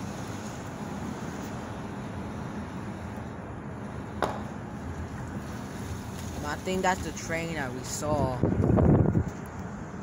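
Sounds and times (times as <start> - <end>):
car road and tyre noise: 0.0 - 10.0.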